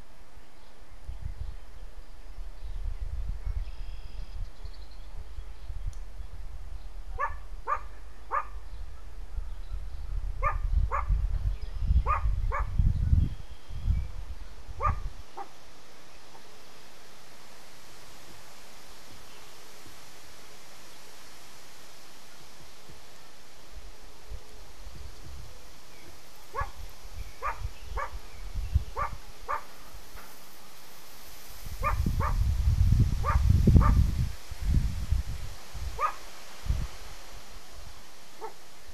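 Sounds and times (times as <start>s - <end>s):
dog barking: 7.2s - 8.6s, 10.4s - 11.1s, 12.1s - 12.7s, 14.8s - 15.5s, 26.5s - 26.8s, 27.4s - 28.2s, 29.0s - 29.7s, 31.8s - 32.4s, 33.2s - 34.0s, 36.0s - 36.2s.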